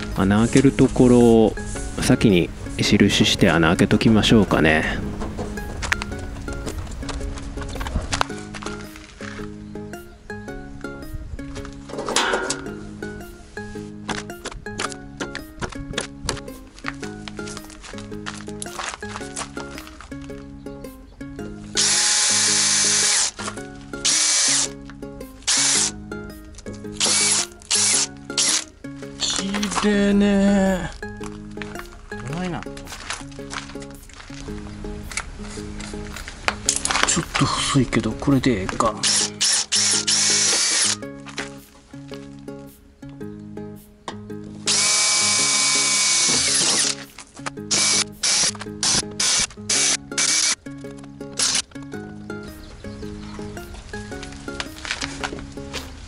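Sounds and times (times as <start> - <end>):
background music: 0.0 - 56.0
electric drill boring metal: 21.8 - 23.4, 24.0 - 24.7, 25.5 - 25.9, 27.0 - 28.6, 39.0 - 41.0, 44.7 - 47.0, 47.7 - 50.6, 51.4 - 51.6.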